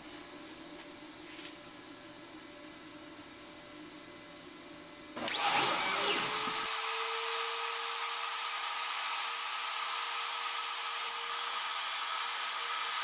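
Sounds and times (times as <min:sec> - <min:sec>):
wood router motor whine: 0:05.2 - 0:13.0.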